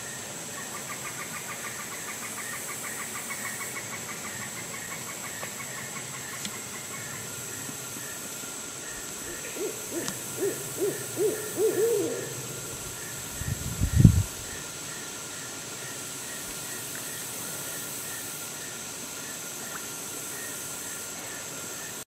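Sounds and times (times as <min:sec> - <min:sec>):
high insect hum: 0:00.0 - 0:22.0
owl hooting: 0:08.9 - 0:13.7
animal trilling: 0:09.3 - 0:12.7.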